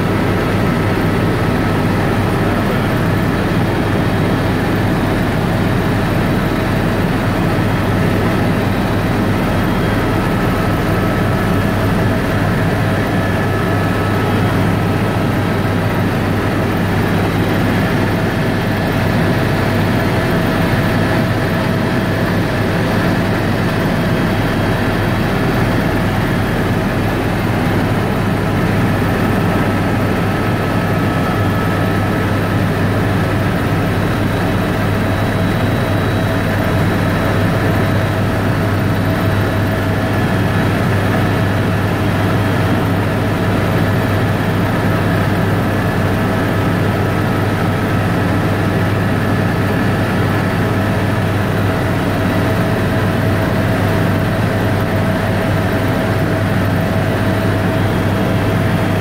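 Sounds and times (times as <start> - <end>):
small aircraft engine droning: 0.0 - 59.0.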